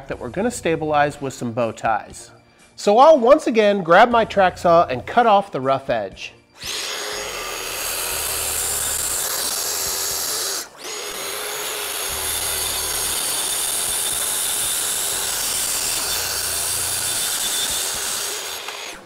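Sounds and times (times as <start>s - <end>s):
track saw cutting wood: 6.6s - 19.0s.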